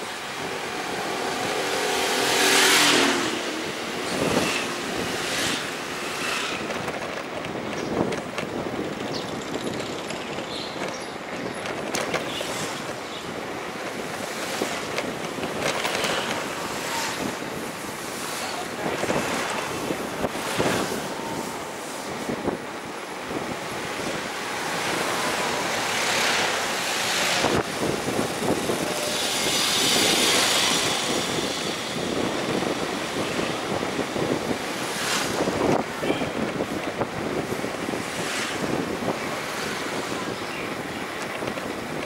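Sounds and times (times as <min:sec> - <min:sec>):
road traffic passing: 0:00.0 - 0:42.0
engine passing close by: 0:01.2 - 0:06.6.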